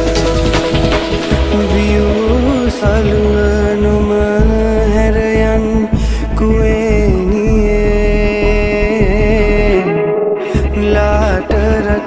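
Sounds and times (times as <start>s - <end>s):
dance music with drums: 0.0s - 4.6s.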